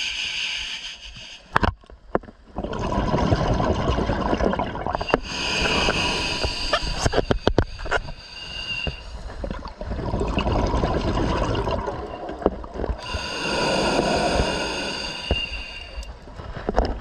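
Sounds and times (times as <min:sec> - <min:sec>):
regulator hissing inhale: 0:00.0 - 0:01.6, 0:05.0 - 0:09.4, 0:13.0 - 0:16.1
bubbling exhale underwater: 0:02.5 - 0:07.4, 0:08.6 - 0:15.6.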